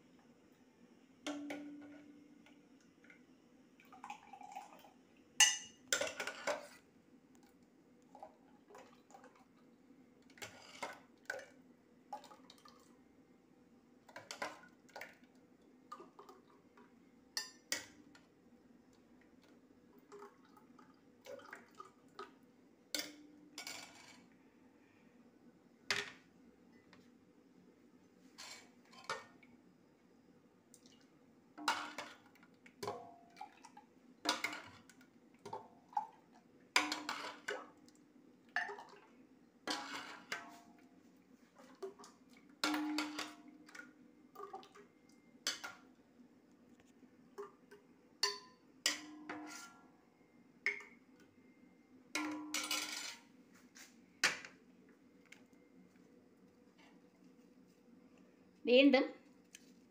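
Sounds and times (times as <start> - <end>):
low steady hum: 0.0 - 59.9
spoon clinking on pot and glasses: 5.4 - 6.4, 48.2 - 49.8.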